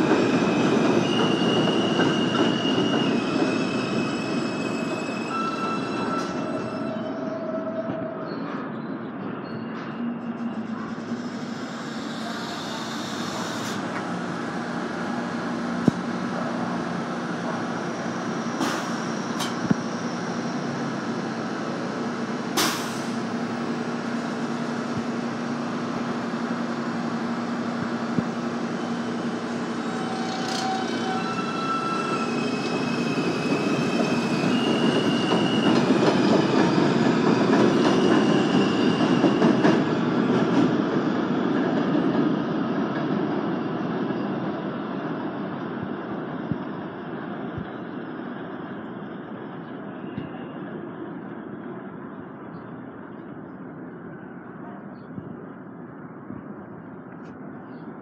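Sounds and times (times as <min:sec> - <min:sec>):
train wheels rumbling on rails: 0:00.0 - 0:06.7, 0:09.7 - 0:48.6
train propulsion tones rising: 0:10.1 - 0:41.4.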